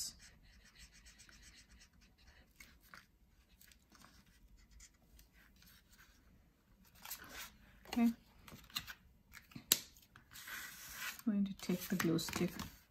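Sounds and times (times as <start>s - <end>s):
marker scratching on paper: 0.0s - 3.0s, 4.0s - 5.0s.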